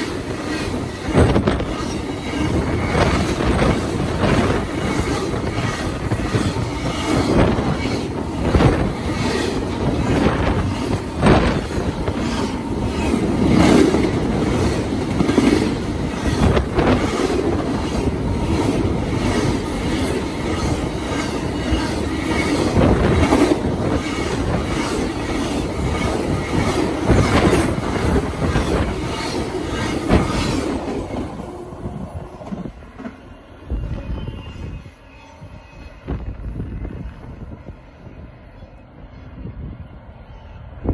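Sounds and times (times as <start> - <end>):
sharp clacks of train wheels: 0.0 - 31.6
freight train wheels rumbling: 0.0 - 40.9.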